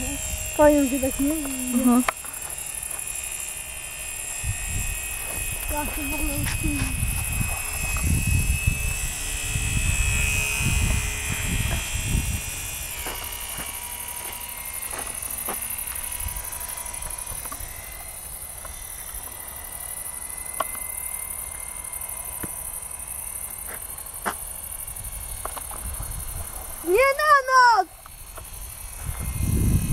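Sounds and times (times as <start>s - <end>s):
model plane motor buzzing: 0.0s - 29.9s
wind rumble on microphone: 4.4s - 13.6s, 25.0s - 27.2s, 28.4s - 29.9s.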